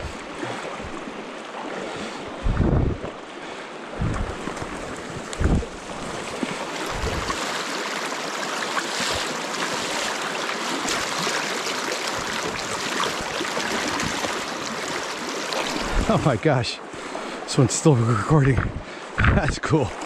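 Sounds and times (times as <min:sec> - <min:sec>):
legs sloshing through water: 0:00.0 - 0:20.0
wind buffeting microphone: 0:02.3 - 0:03.3, 0:03.9 - 0:07.4, 0:15.7 - 0:16.3, 0:18.4 - 0:19.7
stream rushing over riffles: 0:03.3 - 0:20.0.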